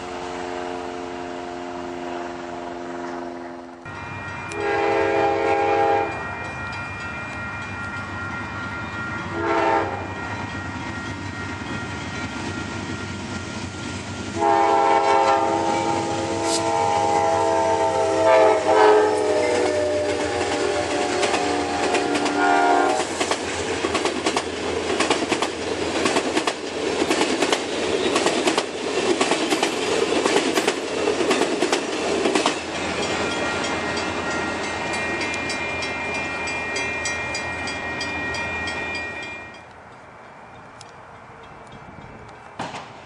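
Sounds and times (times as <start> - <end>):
train horn: 0.0 - 3.9, 4.5 - 6.3, 9.3 - 10.4, 14.3 - 23.2
crossing bell ringing: 3.8 - 16.3, 16.9 - 23.0, 31.2 - 42.5
train wheels clattering: 18.2 - 43.0.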